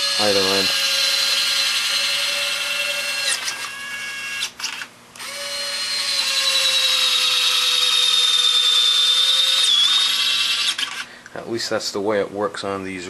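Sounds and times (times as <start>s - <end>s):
gear motor whining: 0.0s - 11.1s.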